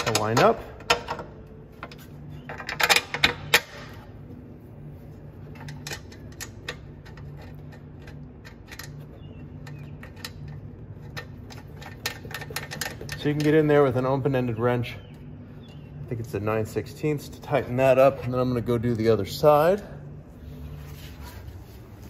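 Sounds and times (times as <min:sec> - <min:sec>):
metal mesh grille clicking and rattling: 0:00.0 - 0:04.0, 0:05.4 - 0:14.6.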